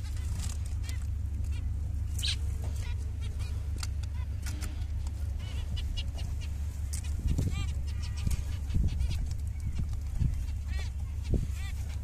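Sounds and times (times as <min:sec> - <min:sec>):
finches chirping: 0:00.0 - 0:12.0
low hum: 0:00.0 - 0:12.0.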